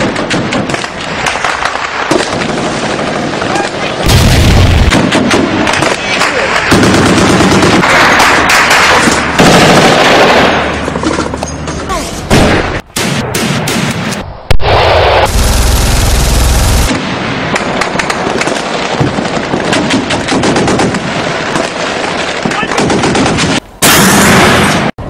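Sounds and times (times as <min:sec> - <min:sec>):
rapid gunfire: 0:00.0 - 0:10.6, 0:15.2 - 0:24.5
loud rumbling noise: 0:14.2 - 0:17.0.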